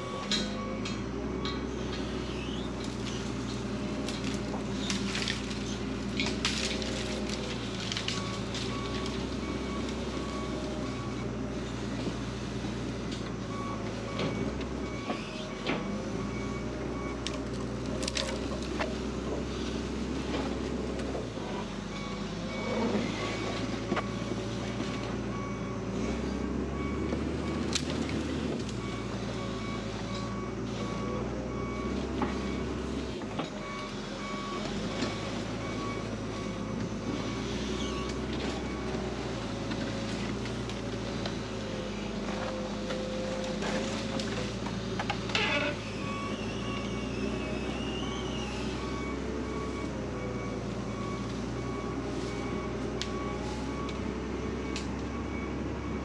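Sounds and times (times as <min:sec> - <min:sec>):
reversing alarm beeping: 0:00.0 - 0:04.6, 0:06.8 - 0:18.4, 0:20.2 - 0:56.0
loader engine running: 0:00.0 - 0:56.0
branches snapping and scraping: 0:02.8 - 0:10.0, 0:17.2 - 0:19.0, 0:27.5 - 0:28.9.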